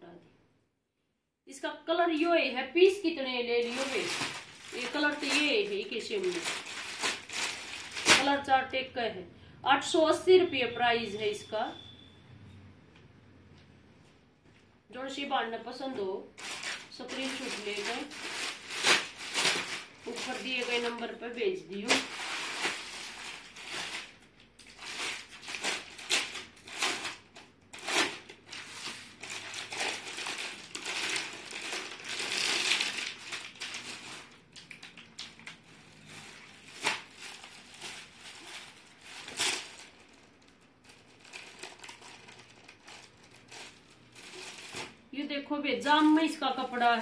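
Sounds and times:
cloth and packaging rustling: 3.4 - 8.4, 16.0 - 45.1.

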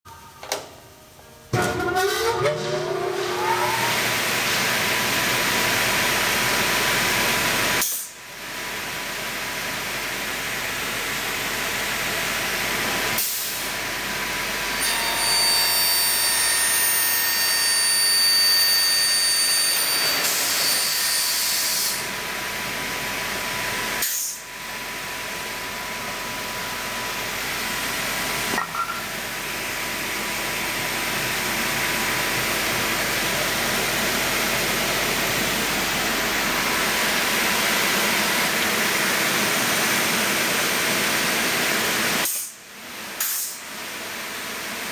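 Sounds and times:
high whining tones: 1.4 - 4.4.

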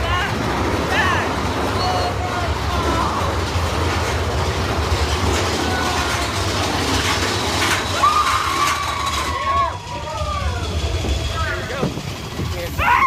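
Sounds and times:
roller coaster rattling rumble: 0.0 - 13.0.

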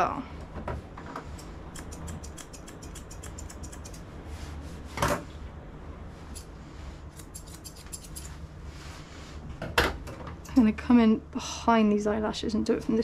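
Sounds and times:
scissors snipping hair: 1.4 - 4.0, 7.1 - 8.4.

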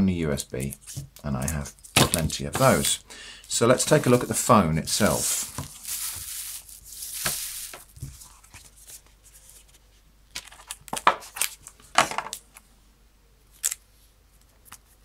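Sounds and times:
cardboard box rustling and scraping: 5.0 - 8.8.

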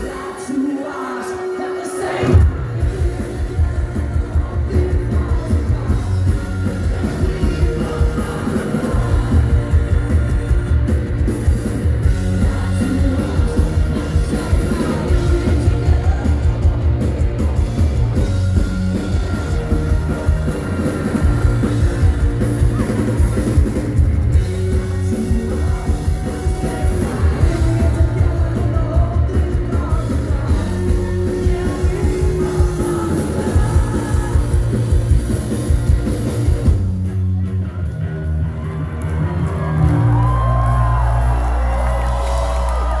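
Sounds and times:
shouted singing: 0.0 - 10.6, 12.1 - 16.6
rock band playing live: 0.0 - 43.0.

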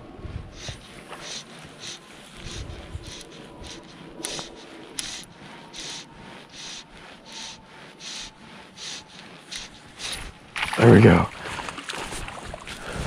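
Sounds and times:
fly line rasping hiss: 0.5 - 10.7
sharp clicks: 2.5 - 5.4.

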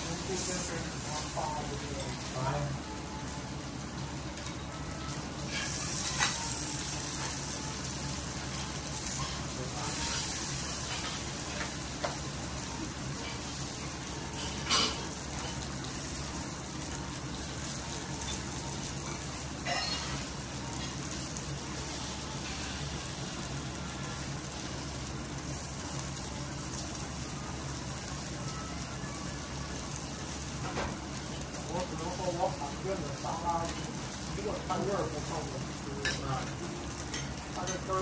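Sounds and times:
steaks sizzling on a griddle: 0.0 - 38.0
metal utensils clinking on hot plate: 5.4 - 7.5, 8.5 - 12.3, 13.2 - 15.8, 18.2 - 21.1, 36.0 - 38.0.

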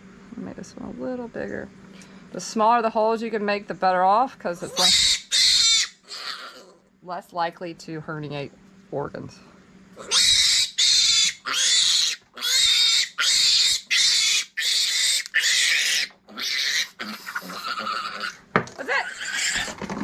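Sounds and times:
piglet squealing: 4.6 - 6.8, 10.0 - 19.8.

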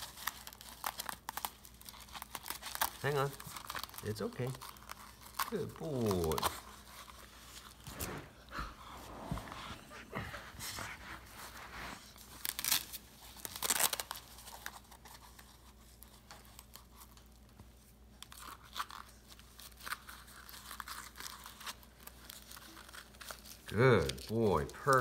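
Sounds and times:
fabric and velcro straps rustling: 0.0 - 8.4, 11.2 - 17.3.

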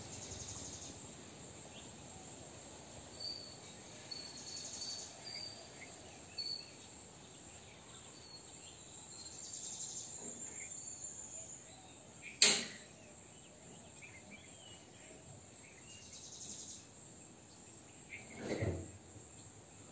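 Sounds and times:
insects chirring: 0.0 - 19.9
sharp click: 12.4 - 12.8.

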